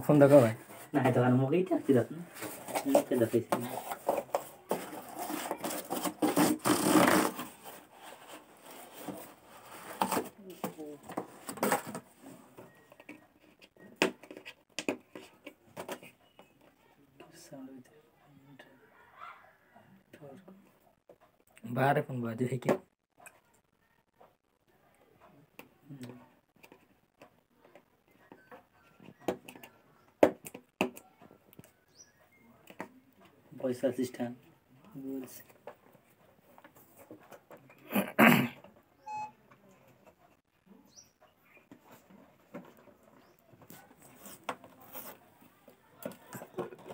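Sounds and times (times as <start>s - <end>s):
cardboard rustling and scraping: 0.2s - 16.2s, 41.7s - 46.9s.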